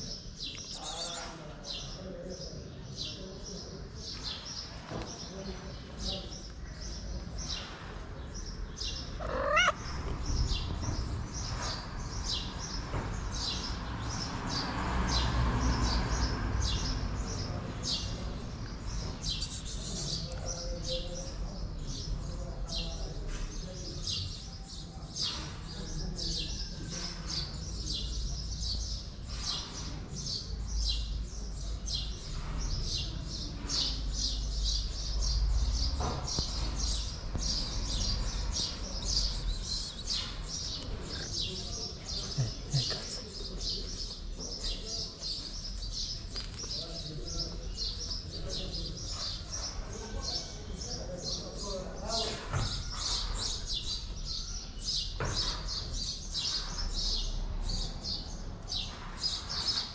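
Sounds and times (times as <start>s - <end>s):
small birds chirping: 0.0s - 59.9s
cat meowing: 9.2s - 10.0s.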